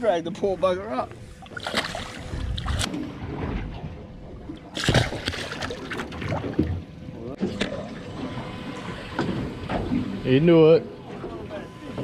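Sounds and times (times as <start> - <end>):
water sloshing: 1.1 - 10.2
fish splashing and thrashing: 1.4 - 7.0.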